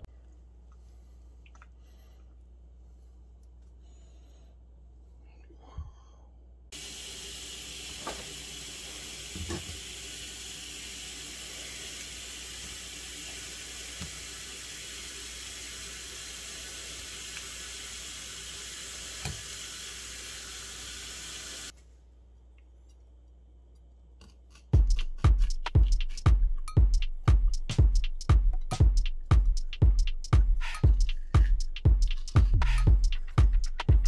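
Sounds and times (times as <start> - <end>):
tap water running into steel sink: 6.8 - 21.7.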